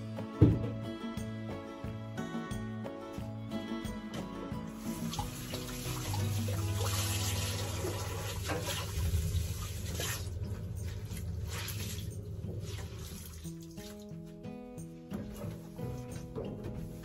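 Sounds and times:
tap water running into sink: 4.8 - 14.1
water splashes and drips: 4.8 - 14.4.

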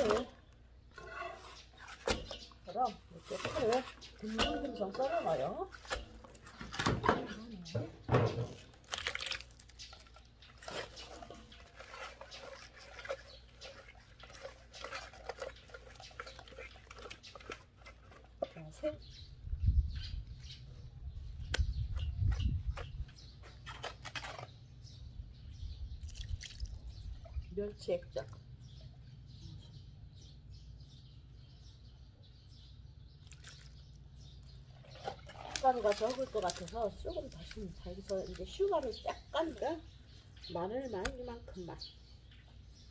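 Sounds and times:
stick scraping plastic bowl: 0.0 - 7.4, 9.8 - 18.8
small birds chirping: 0.0 - 42.9.

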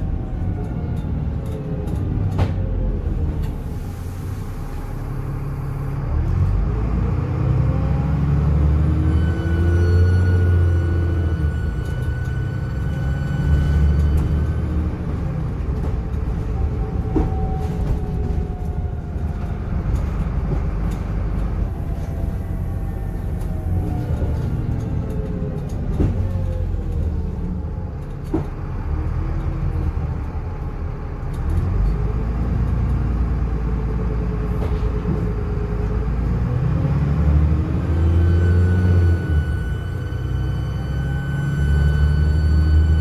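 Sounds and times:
bus engine rumble: 0.0 - 43.0
bus body knocks and rattles: 25.8 - 26.7, 34.5 - 35.6
turbo whistle: 37.9 - 43.0.

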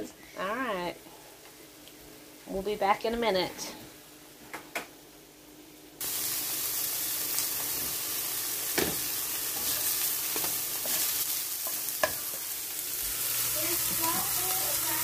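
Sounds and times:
mushrooms sizzling in a pan: 6.0 - 15.0.

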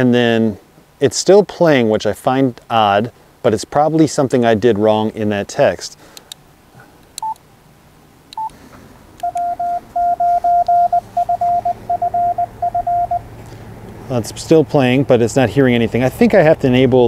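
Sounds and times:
short beeps: 8.4 - 8.6, 9.2 - 13.3
morse code tone: 9.2 - 13.3.

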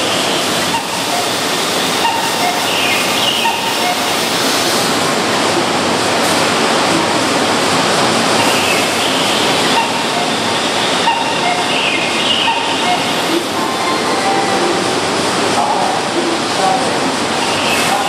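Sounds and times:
electric train hiss and hum: 8.4 - 17.4.

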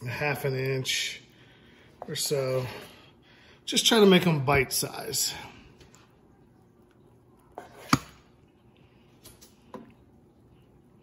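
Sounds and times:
knife chopping on wooden board: 7.8 - 8.2.

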